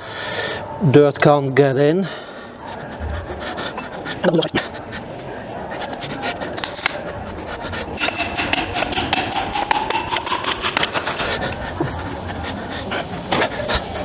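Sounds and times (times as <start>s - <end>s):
hammer tapping on metal: 8.0s - 11.2s.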